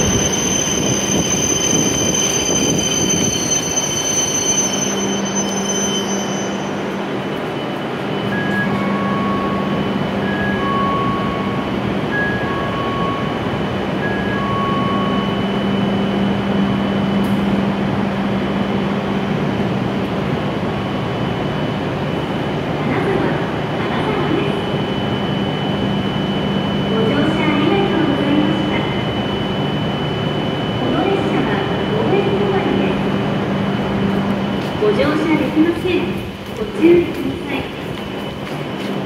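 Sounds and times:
train brakes whining: 0.0 - 15.7
standing train humming: 0.0 - 39.0.

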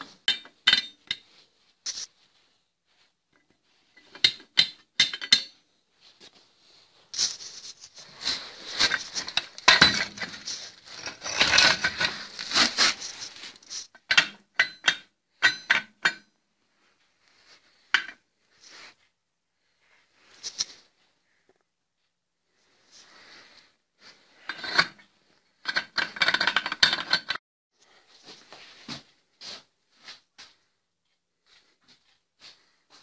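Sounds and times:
metal rattling and scraping: 7.2 - 14.3
steel pieces clinking: 8.8 - 14.2.

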